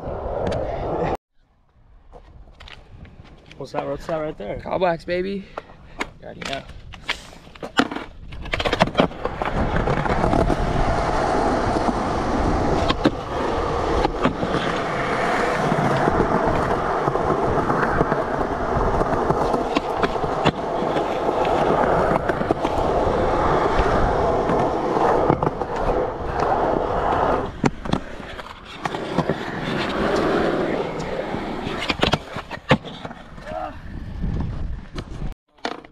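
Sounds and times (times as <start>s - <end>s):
skateboard wheels rolling on concrete: 0.0s - 35.9s
skateboard clack: 6.0s - 33.2s.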